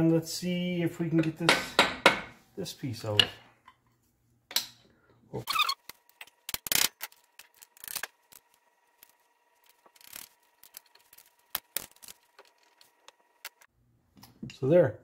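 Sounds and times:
screwdriver clicking and scraping metal: 9.9 - 13.7.

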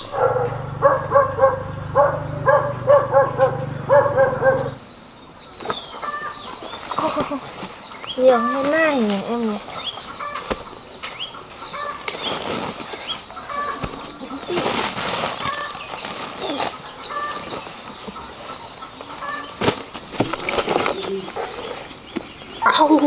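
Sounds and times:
small birds chirping: 0.0 - 23.0
rustling: 6.6 - 23.0.

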